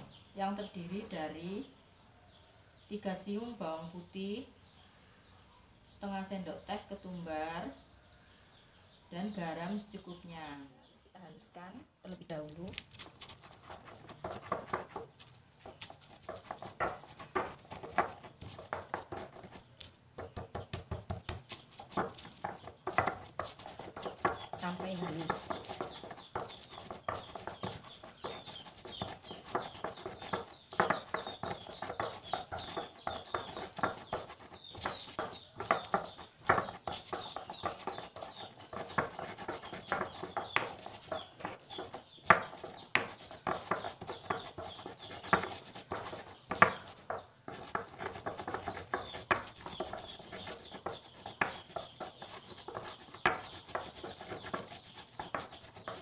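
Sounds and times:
pestle scraping in stone mortar: 12.4 - 56.0
stone knocking on stone: 12.7 - 56.0.

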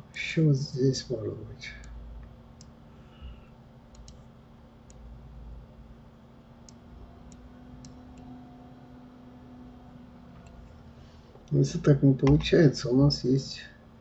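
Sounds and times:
faint steady hum: 0.0 - 14.0
computer mouse clicking: 3.9 - 4.3, 6.6 - 8.4, 10.4 - 10.7, 12.2 - 12.6.

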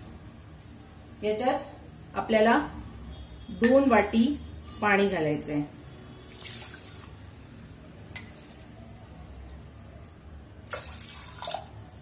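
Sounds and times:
water pouring and splashing: 6.3 - 7.4, 10.7 - 11.7.

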